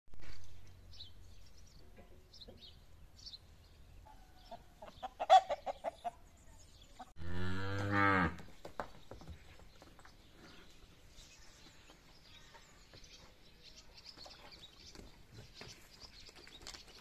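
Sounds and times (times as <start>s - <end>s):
hens clucking: 4.1s - 6.3s
cow mooing: 7.2s - 8.4s.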